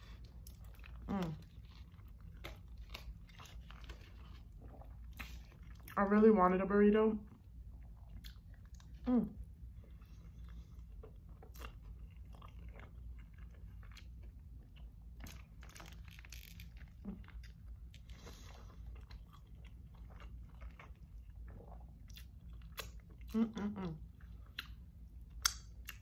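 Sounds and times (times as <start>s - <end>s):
chewing crunchy food: 0.0s - 6.0s, 7.3s - 26.0s
wet mouth clicks: 25.4s - 26.0s.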